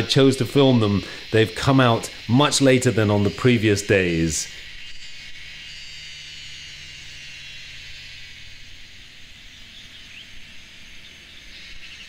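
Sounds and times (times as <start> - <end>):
insects calling: 0.0 - 12.0.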